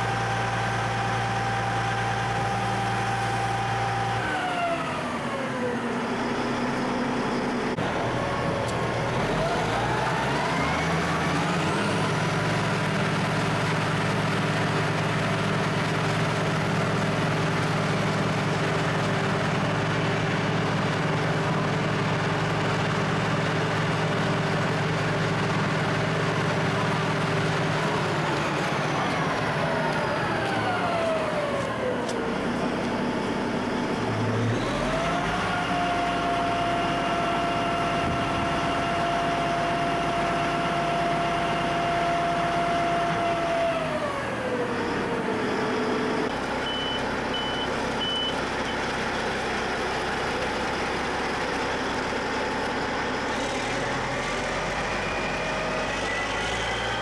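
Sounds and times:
snow blower truck engine whining: 0.0s - 57.0s
short high beeps: 46.7s - 48.4s.

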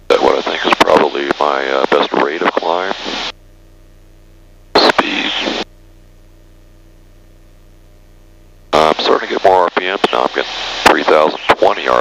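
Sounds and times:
faint low engine hum: 0.0s - 12.0s
radio noise burst: 0.1s - 3.3s, 4.8s - 5.7s, 8.8s - 12.0s.

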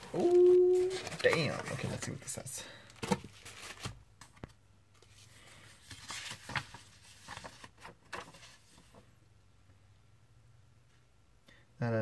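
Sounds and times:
paper rustling and crinkling: 0.0s - 2.3s, 2.9s - 9.1s.

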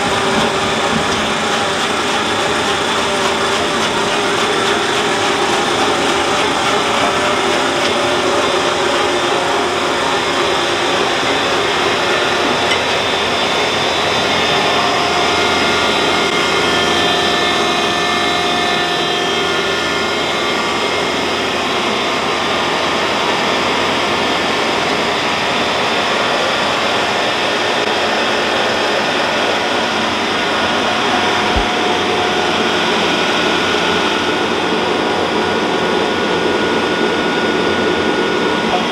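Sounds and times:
tractor running: 0.0s - 38.9s
windrower churning: 0.0s - 38.9s.

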